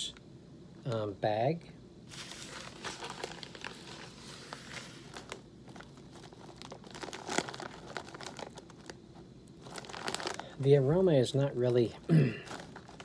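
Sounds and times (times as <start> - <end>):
snack bag crinkling: 2.1 - 10.6, 11.7 - 13.0.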